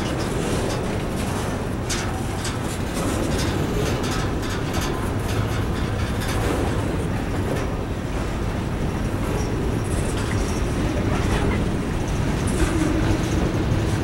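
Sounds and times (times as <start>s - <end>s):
wheels clicking and clattering: 0.0s - 8.3s, 8.9s - 14.0s
freight train wheels rumbling on rails: 0.0s - 14.0s.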